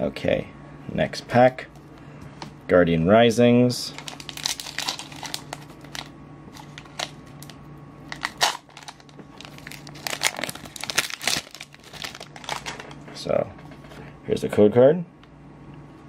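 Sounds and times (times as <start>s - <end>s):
foil wrapper crinkling: 3.9s - 13.0s
wrapper being torn open: 4.0s - 12.8s.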